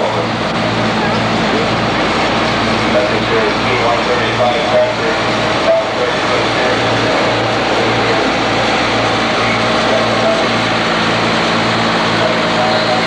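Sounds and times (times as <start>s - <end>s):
tractor diesel engine driving past: 0.0s - 13.0s.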